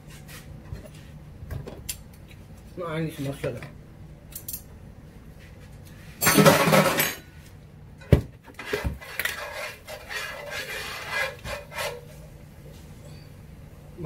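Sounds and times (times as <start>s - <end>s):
metal spoon scraping skillet: 8.6s - 12.4s.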